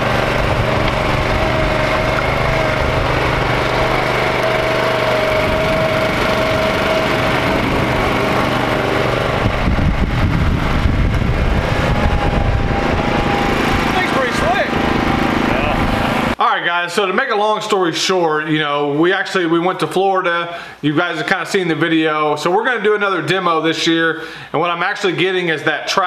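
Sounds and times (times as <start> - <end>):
walk-behind tractor engine running: 0.0 - 16.4.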